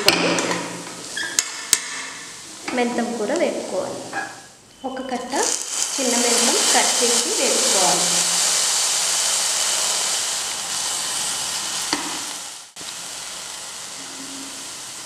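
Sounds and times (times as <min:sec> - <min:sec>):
greens sizzling in hot oil: 0:05.3 - 0:15.0.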